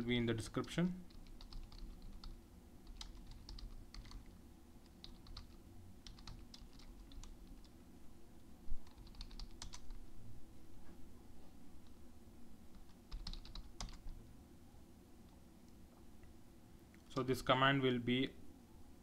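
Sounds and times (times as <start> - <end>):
keyboard typing clicks: 1.1 - 4.3, 5.0 - 7.7, 8.8 - 9.9, 12.8 - 14.1.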